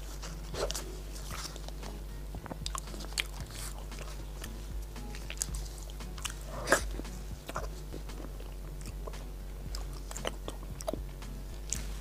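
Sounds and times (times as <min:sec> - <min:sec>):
chewing with mouth clicks: 0:00.0 - 0:12.0.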